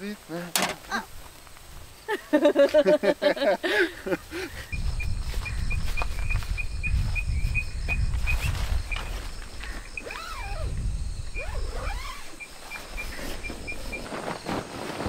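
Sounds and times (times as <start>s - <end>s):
night insects chirping: 0.0s - 15.0s
animal calls: 9.6s - 14.1s.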